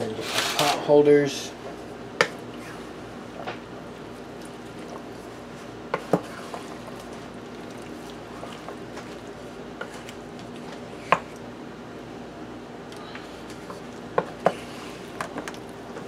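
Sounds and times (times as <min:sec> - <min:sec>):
steady low hum: 0:00.0 - 0:16.0
wet vegetables squishing: 0:04.0 - 0:11.5.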